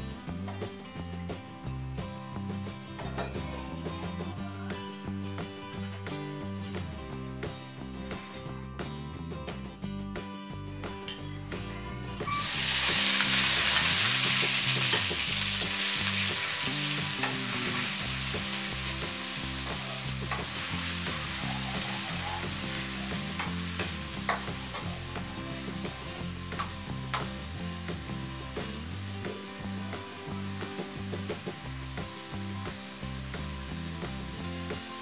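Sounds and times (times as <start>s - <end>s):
onions sizzling in hot oil: 12.2s - 35.0s
metal spoon scraping a wok: 19.5s - 25.0s.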